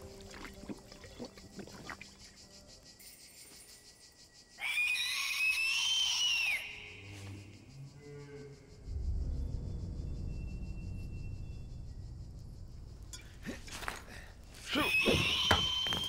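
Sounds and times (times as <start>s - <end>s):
owl screech: 4.6s - 7.2s, 14.7s - 16.0s.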